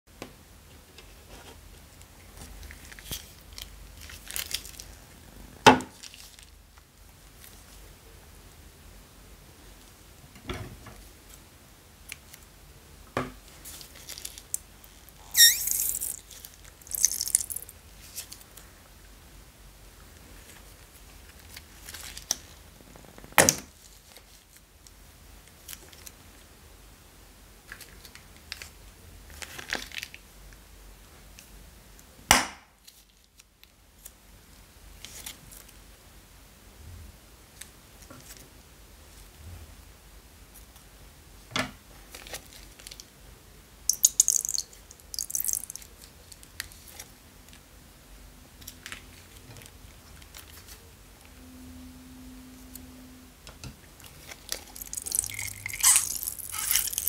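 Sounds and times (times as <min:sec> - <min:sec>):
plastic bag crinkling: 0:02.5 - 0:05.0, 0:15.4 - 0:18.4, 0:44.0 - 0:45.8, 0:54.2 - 0:57.0
clay and slime squelching: 0:43.9 - 0:47.1, 0:54.0 - 0:57.0.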